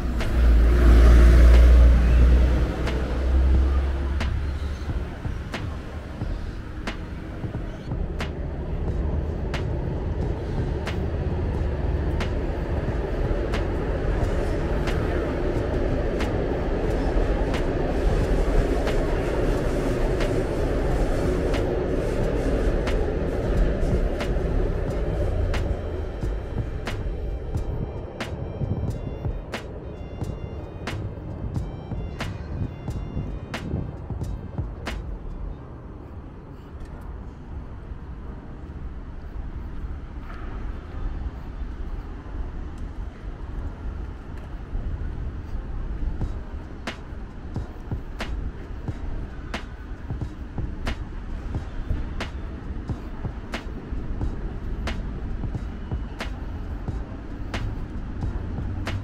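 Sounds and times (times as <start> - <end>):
traffic rumble overhead: 0.0 - 59.0.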